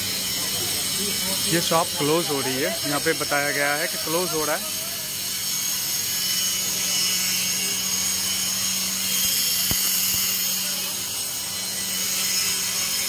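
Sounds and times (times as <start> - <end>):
murmur of distant voices: 0.0 - 13.0
sharp click: 9.6 - 10.3.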